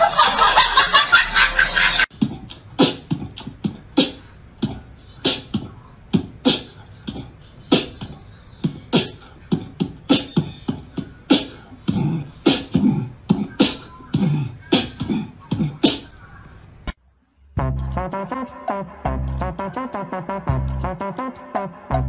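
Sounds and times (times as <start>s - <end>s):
beatbox clicks and snare hits: 2.2s - 9.2s
deep humming bass notes: 17.5s - 21.1s.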